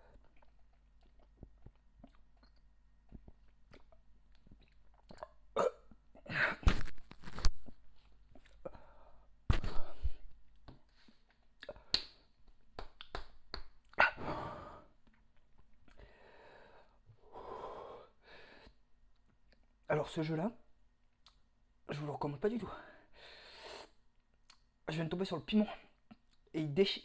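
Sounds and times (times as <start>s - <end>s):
man chewing with mouth clicks: 0.0s - 6.2s.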